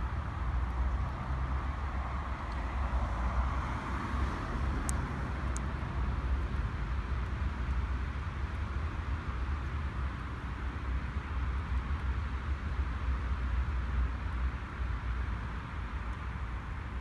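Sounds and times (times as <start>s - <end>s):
motorway traffic noise: 0.0s - 17.0s
faint ticks: 4.8s - 5.8s.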